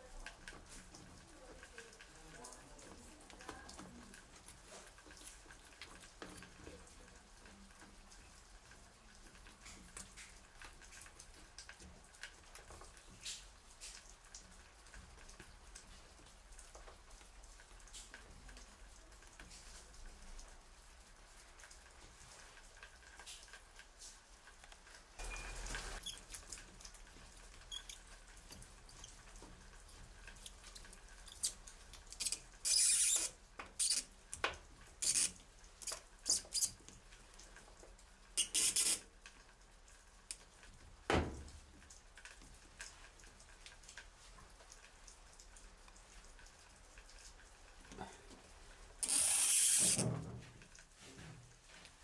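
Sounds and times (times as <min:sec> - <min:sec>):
short hissing bursts: 0:49.0 - 0:50.0.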